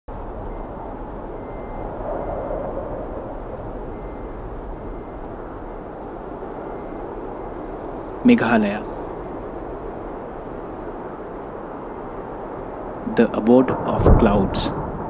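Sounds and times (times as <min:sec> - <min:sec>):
road and wind noise: 0:00.1 - 0:15.0
faint high beep: 0:00.4 - 0:10.6.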